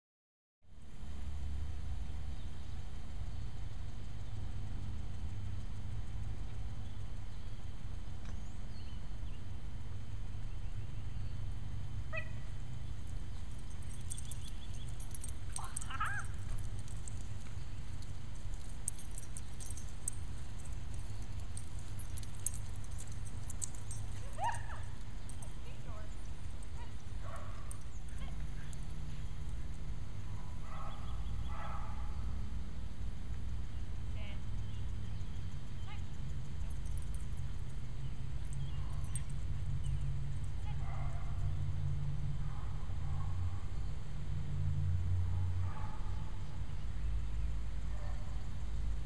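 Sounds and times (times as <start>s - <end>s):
light metallic jingling: 12.6s - 32.1s, 33.4s - 43.2s.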